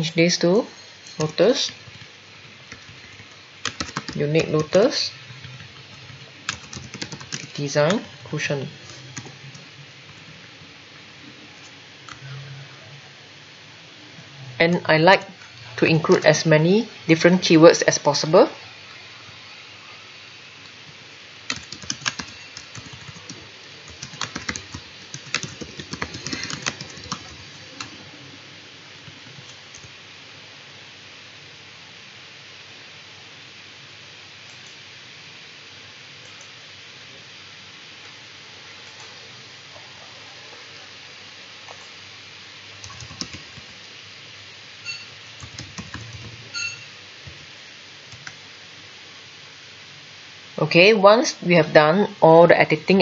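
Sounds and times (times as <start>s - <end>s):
steady hiss: 0.0s - 53.0s
keyboard typing clicks: 21.5s - 27.4s.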